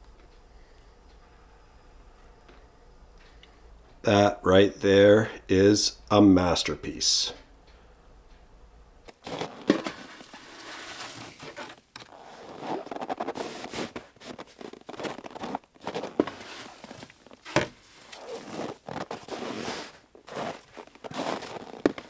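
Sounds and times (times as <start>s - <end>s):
snow shovel scraping snow: 9.2s - 22.0s.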